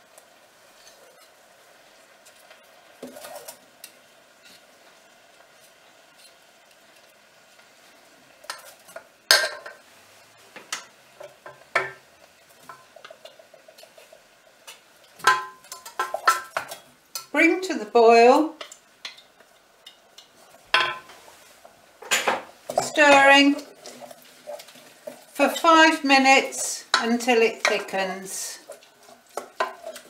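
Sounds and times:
utensils scraping in a saucepan: 0.7s - 1.4s, 2.2s - 4.7s, 10.7s - 30.0s.

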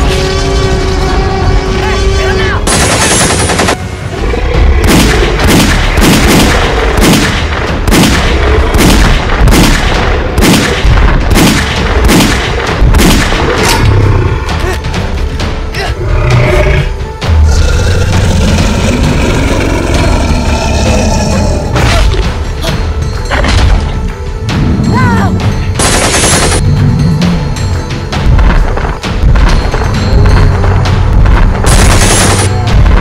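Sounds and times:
rifle single shots: 4.8s - 13.5s.

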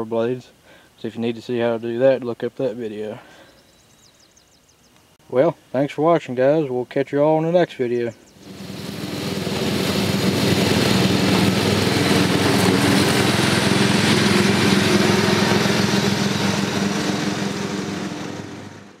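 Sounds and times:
lawn mower engine running: 8.4s - 19.0s.

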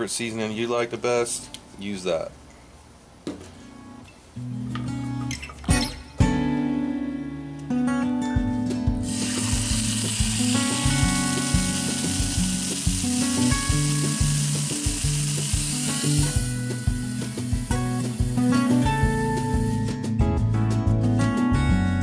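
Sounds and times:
acoustic guitar music: 3.4s - 22.0s
meat sizzling in a pot: 9.0s - 19.2s.

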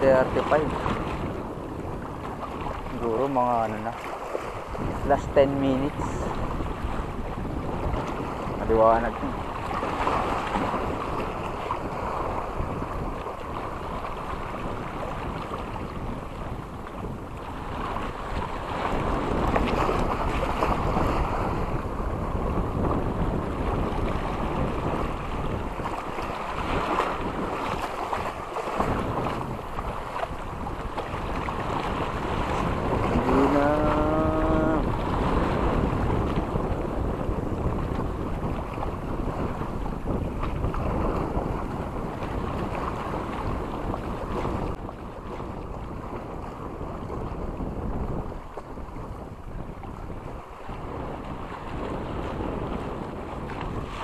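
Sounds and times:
waves washing on shore: 0.0s - 54.0s
wind buffeting microphone: 0.0s - 54.0s.

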